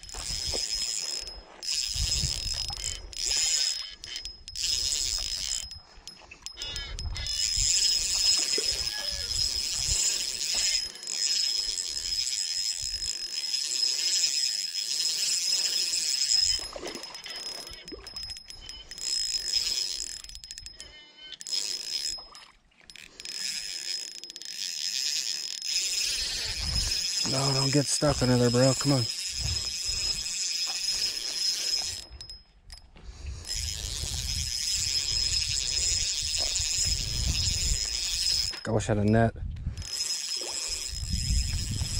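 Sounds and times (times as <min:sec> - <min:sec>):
insects trilling: 0:00.0 - 0:05.6, 0:06.3 - 0:20.2, 0:23.0 - 0:32.0
fishing reel whirring: 0:00.0 - 0:41.9.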